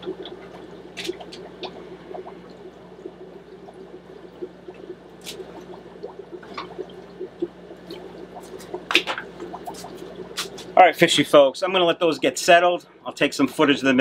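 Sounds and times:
water trickling and bubbling: 0.0s - 10.8s
low equipment hum: 0.0s - 14.0s.

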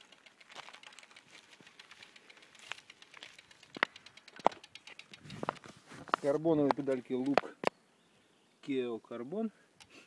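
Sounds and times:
camera handling rustling: 0.0s - 7.8s.

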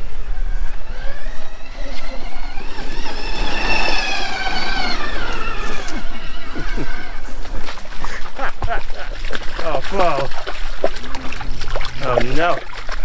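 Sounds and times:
electric motor whining: 0.0s - 7.9s.

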